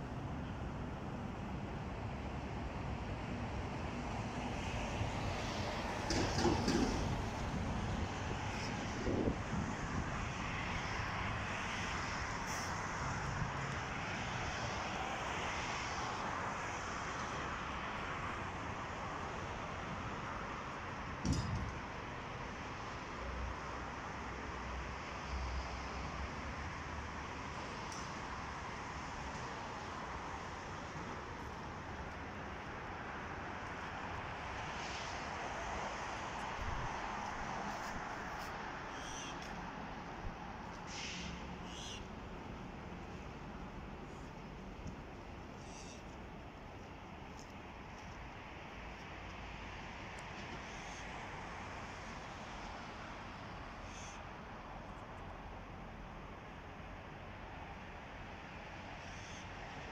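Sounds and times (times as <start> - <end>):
road traffic rumble: 0.0 - 59.9
outdoor rushing hiss: 12.3 - 13.3, 40.7 - 42.2.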